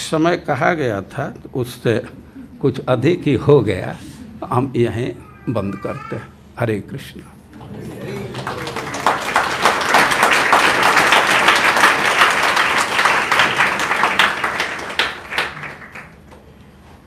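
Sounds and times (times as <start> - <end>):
audience applause: 7.6 - 16.4.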